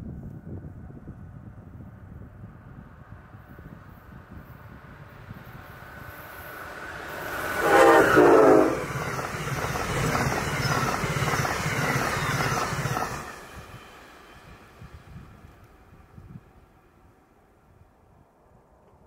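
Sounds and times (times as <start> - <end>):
train wheel rumble and clatter: 0.4 - 16.8
train horn blasts: 7.0 - 9.1.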